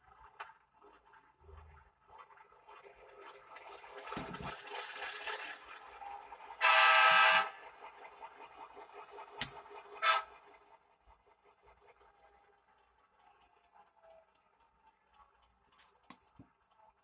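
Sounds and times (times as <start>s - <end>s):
model locomotive horn: 6.6s - 7.7s, 9.9s - 10.5s.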